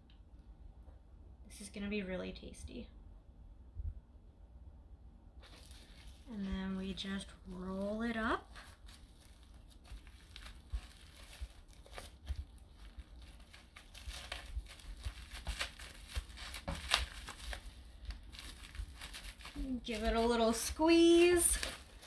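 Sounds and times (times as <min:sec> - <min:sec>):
plastic-wrapped mat crinkling: 0:05.4 - 0:22.0.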